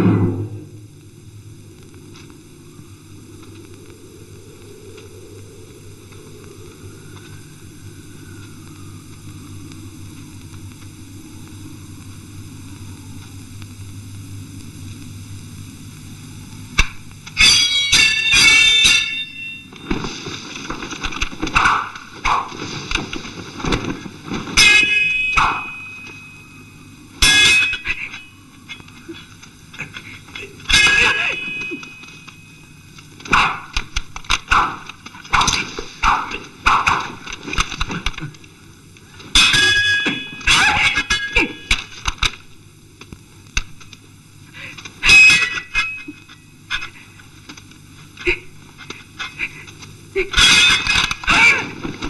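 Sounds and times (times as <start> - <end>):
swords clashing: 24.6 - 26.0, 27.2 - 28.0, 30.7 - 32.0, 39.4 - 41.6.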